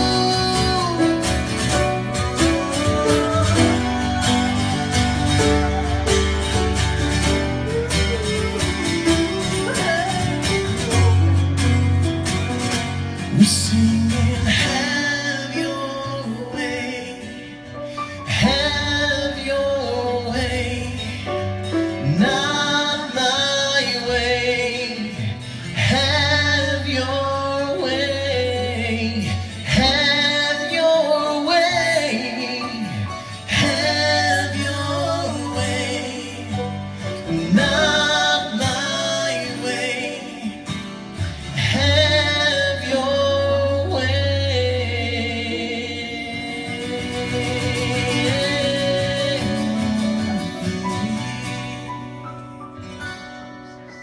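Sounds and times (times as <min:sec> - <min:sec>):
piano low bass notes: 0:00.0 - 0:23.4
acoustic guitar: 0:00.0 - 0:54.0
woman singing with vibrato: 0:02.6 - 0:06.5.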